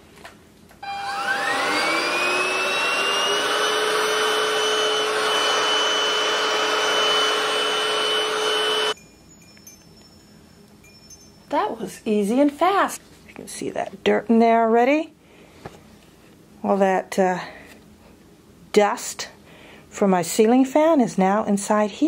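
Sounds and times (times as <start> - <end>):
vacuum motor whine: 0.8 - 9.0.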